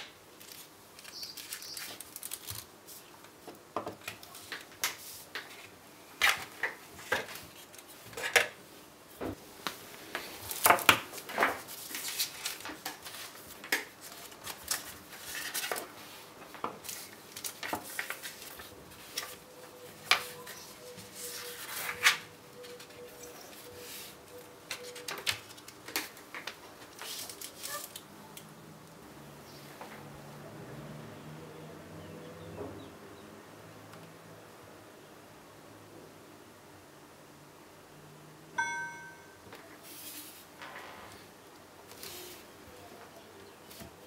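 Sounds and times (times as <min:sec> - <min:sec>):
paper pages rustling: 0:00.4 - 0:03.3, 0:10.4 - 0:16.2, 0:16.8 - 0:28.0.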